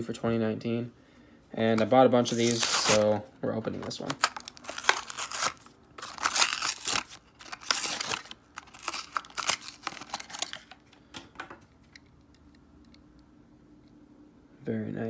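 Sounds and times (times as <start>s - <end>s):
cardboard ripping: 2.2s - 3.2s, 4.0s - 10.6s
plastic crinkling: 2.2s - 10.9s.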